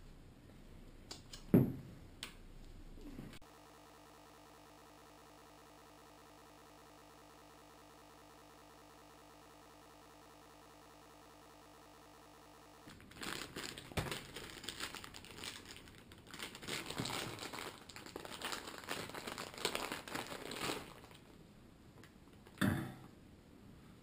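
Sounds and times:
faint steady hum: 0:00.0 - 0:24.0
plastic bags crinkling: 0:12.9 - 0:21.4.

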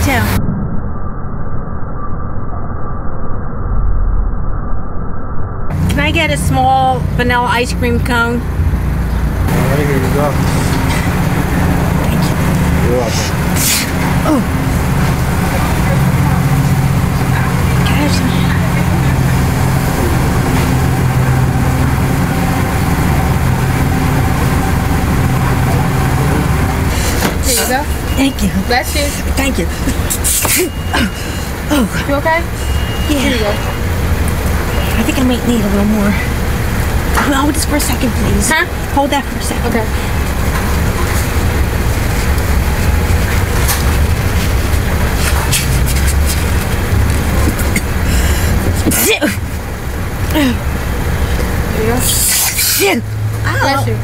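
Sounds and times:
car engine idling: 0:05.7 - 0:52.3.

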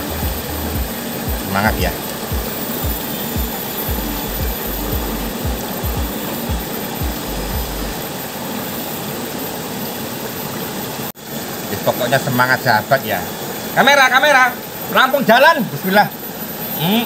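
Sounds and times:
microphone rumbling thumps: 0:00.0 - 0:07.9.

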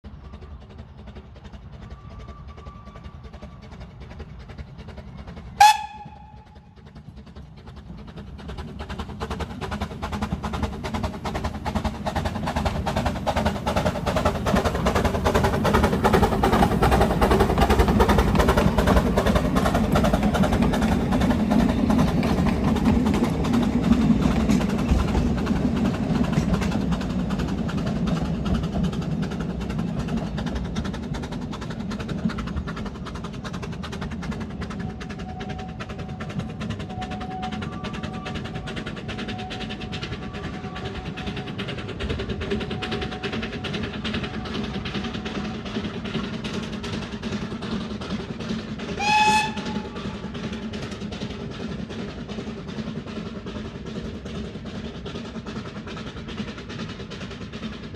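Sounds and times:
steam train passing: 0:00.0 - 0:57.9
steam locomotive whistle: 0:05.6 - 0:06.7, 0:34.9 - 0:41.6, 0:48.9 - 0:50.2.

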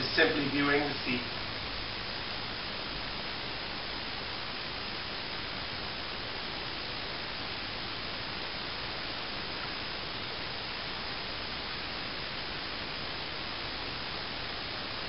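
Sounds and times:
steady hiss: 0:00.0 - 0:15.0.

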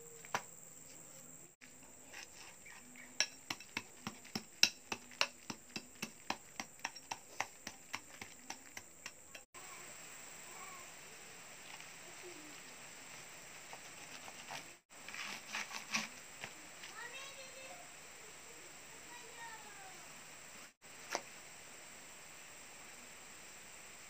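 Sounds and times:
steel bar chipping cement: 0:02.2 - 0:09.5.

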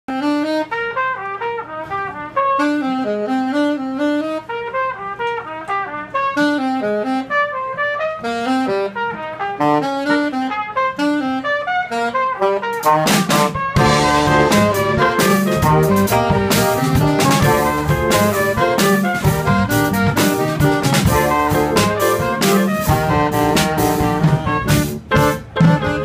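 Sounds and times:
trumpet and saxophone melody: 0:00.1 - 0:26.0
drum and cymbal hits: 0:12.8 - 0:26.0.

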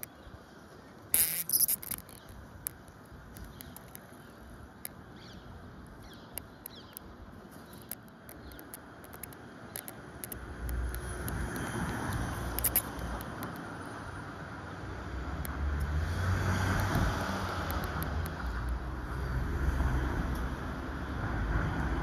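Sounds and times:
outdoor background hiss: 0:00.0 - 0:22.0
small clicks: 0:01.1 - 0:05.3, 0:06.0 - 0:13.7, 0:16.7 - 0:18.9.

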